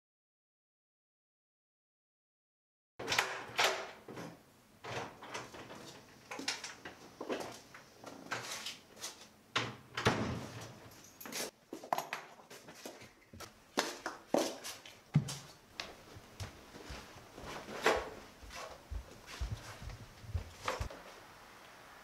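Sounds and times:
footsteps on tiled floor: 11.2s - 21.0s.

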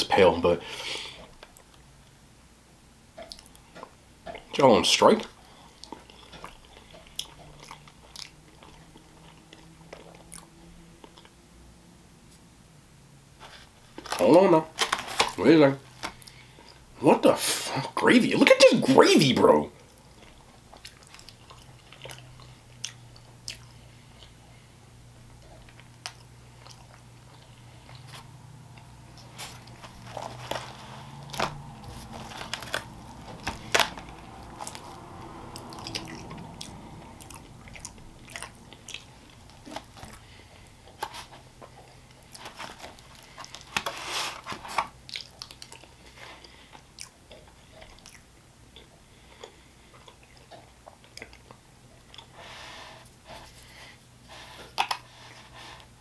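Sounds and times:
wet chewing: 3.2s - 4.6s, 5.2s - 11.4s, 19.8s - 24.6s, 25.3s - 52.4s
lip smacks: 35.6s - 43.9s, 44.8s - 52.3s.

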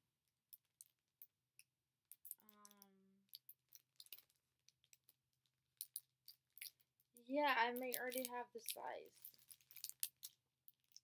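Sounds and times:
makeup brushes clicking and tapping: 3.3s - 11.0s.

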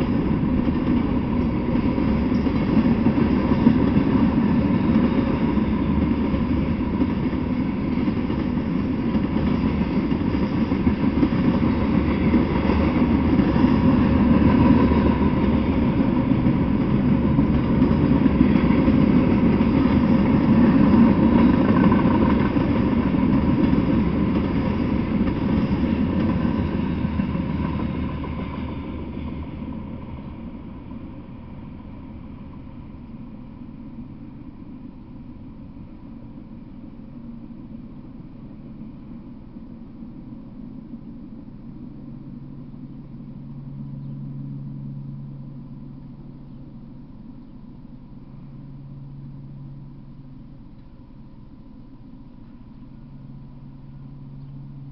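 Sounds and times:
train wheels on rail: 0.0s - 43.8s.

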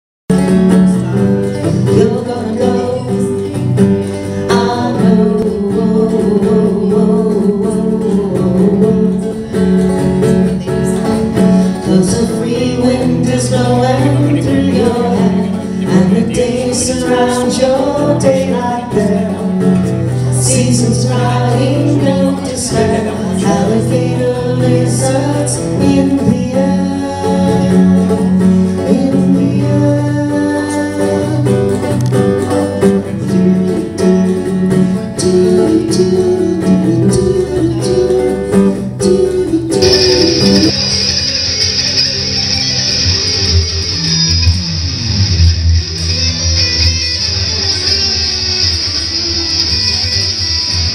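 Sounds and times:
acoustic guitar strumming: 0.3s - 50.9s
bass guitar low notes: 0.3s - 50.9s
woman singing: 1.7s - 3.6s, 4.4s - 9.6s, 10.2s - 32.0s, 35.0s - 41.0s.

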